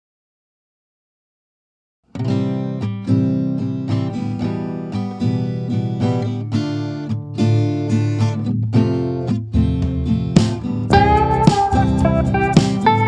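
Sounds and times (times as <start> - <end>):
strummed acoustic guitar: 2.1 - 13.0
low bass line: 10.9 - 13.0.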